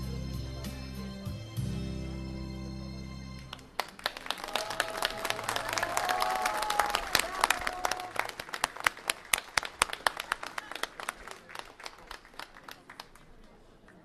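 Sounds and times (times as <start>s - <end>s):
audience applause: 3.5s - 14.0s.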